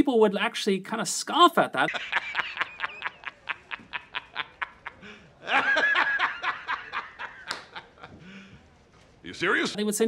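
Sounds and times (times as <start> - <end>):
man laughing hard: 1.9 - 8.2.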